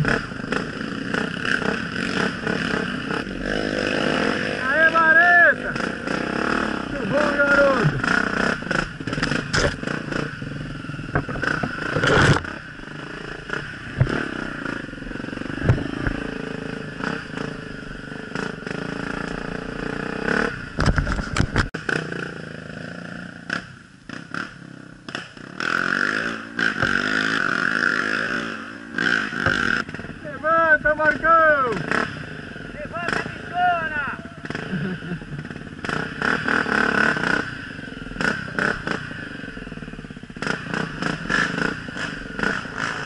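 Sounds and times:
dirt bike engine revving: 0:00.0 - 0:43.0
knocks and rattles of bike jolting: 0:07.5 - 0:10.3, 0:11.0 - 0:12.7, 0:15.5 - 0:16.2, 0:20.7 - 0:21.7.

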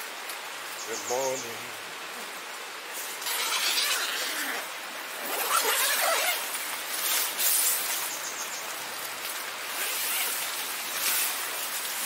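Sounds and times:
outdoor hiss: 0:00.0 - 0:12.0
tent canvas rustling and flapping: 0:02.9 - 0:08.1, 0:09.2 - 0:12.0.

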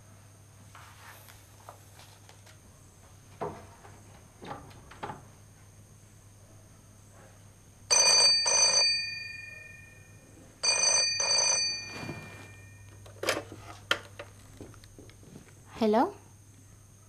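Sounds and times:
telephone bell ringing: 0:07.9 - 0:13.0.

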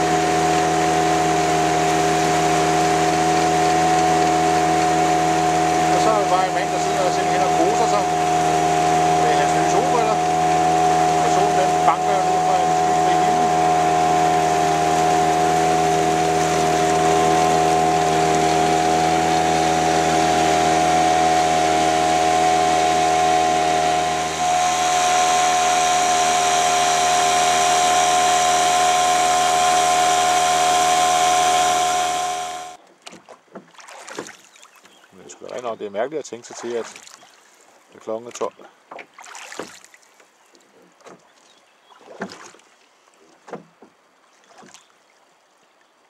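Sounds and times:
outboard motor running: 0:00.0 - 0:32.8
faint water sounds: 0:00.0 - 0:46.0.

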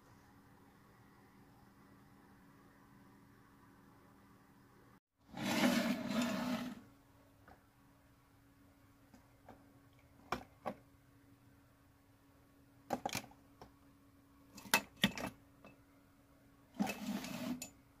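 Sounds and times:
faint steady hum: 0:00.0 - 0:18.0
rustling scrape: 0:05.3 - 0:06.8, 0:16.8 - 0:17.7.

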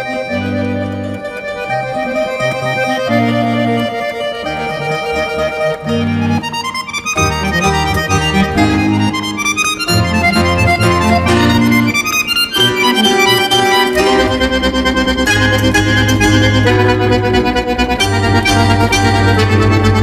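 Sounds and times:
accordion playing chords: 0:00.0 - 0:20.0
pulsing bass line: 0:07.2 - 0:20.0.

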